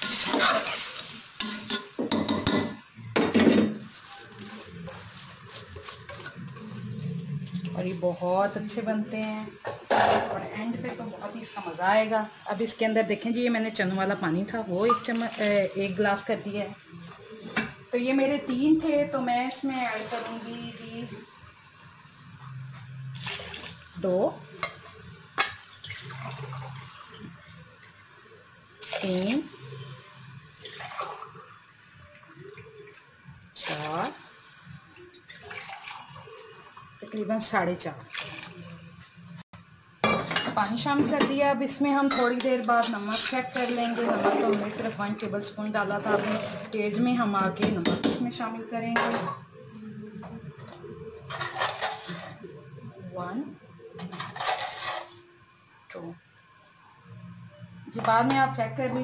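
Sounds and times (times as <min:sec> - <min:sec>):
metal spoon scraping steel pot: 0:00.0 - 0:02.7, 0:04.5 - 0:08.0, 0:42.8 - 0:44.7, 0:46.0 - 0:46.7, 0:54.0 - 0:55.2
water splashing into a pot: 0:00.0 - 0:06.8, 0:23.1 - 0:39.2
hot oil sizzling: 0:00.0 - 0:59.0.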